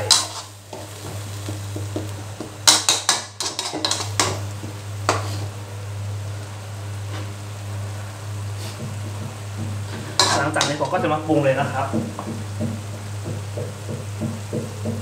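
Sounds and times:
metal spatula scraping a wok: 0:00.0 - 0:01.6, 0:02.6 - 0:05.6, 0:09.8 - 0:11.0
sauce sizzling: 0:00.0 - 0:15.0
steady low hum: 0:00.0 - 0:15.0.

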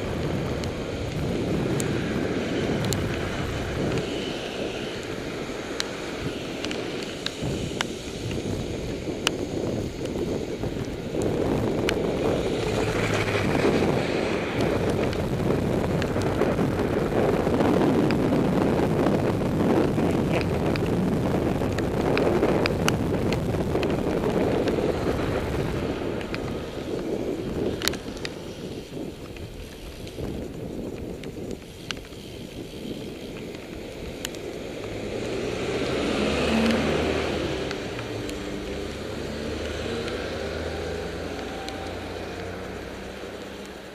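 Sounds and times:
car passing: 0:00.0 - 0:30.6, 0:32.4 - 0:43.9
bicycle tyres on wet road: 0:00.0 - 0:43.9
wind noise on microphone: 0:00.0 - 0:43.9
sharp ticks: 0:02.8 - 0:03.2, 0:04.9 - 0:13.2, 0:26.1 - 0:35.4, 0:36.6 - 0:43.9.

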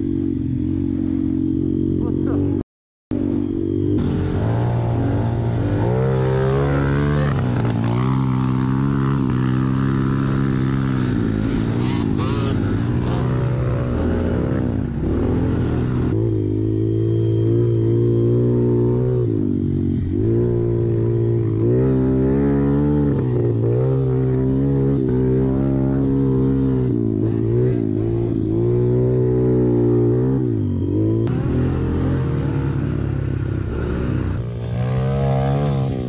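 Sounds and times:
off-road vehicle engine revving: 0:01.2 - 0:36.0.

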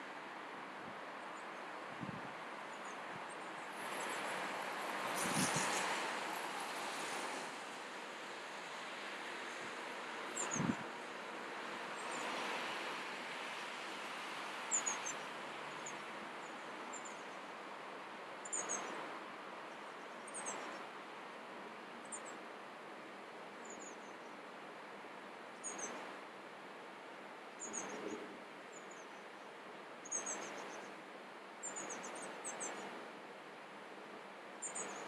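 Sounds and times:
small bird chirping: 0:30.0 - 0:30.9, 0:31.6 - 0:32.8.

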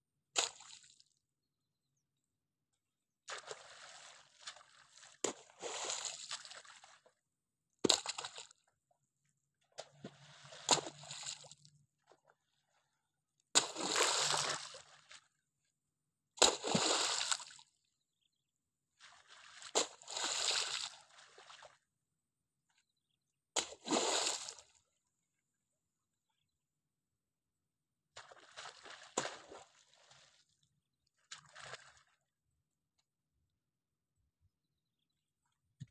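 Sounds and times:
wet mud splashing: 0:03.3 - 0:07.1, 0:07.8 - 0:08.6, 0:09.8 - 0:11.6, 0:13.6 - 0:15.3, 0:16.4 - 0:17.6, 0:19.0 - 0:21.8, 0:28.2 - 0:30.4, 0:31.2 - 0:32.2.

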